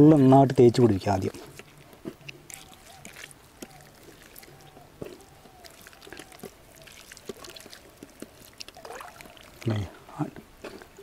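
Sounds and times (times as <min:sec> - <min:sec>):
hands rubbing paste into chicken: 0:01.0 - 0:09.6.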